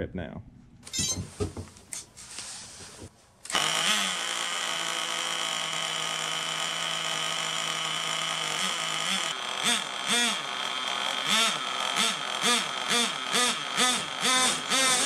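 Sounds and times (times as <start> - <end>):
model engine fast idle and revs: 3.6 - 15.0.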